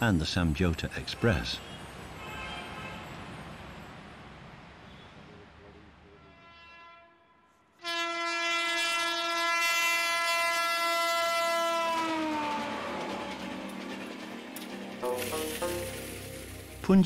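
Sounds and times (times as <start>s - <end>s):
rush of running train: 0.0s - 6.1s, 9.6s - 17.0s
train horn blast: 1.6s - 3.2s, 6.2s - 16.7s.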